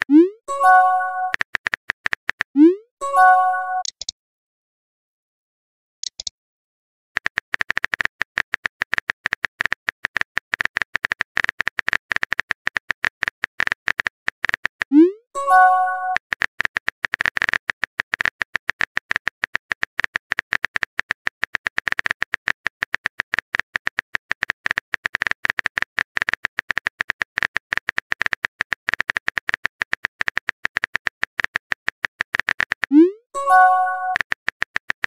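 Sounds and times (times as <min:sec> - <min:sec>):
phone keyboard typing clicks: 0:03.6 - 0:04.1, 0:06.0 - 0:06.3, 0:07.2 - 0:15.0.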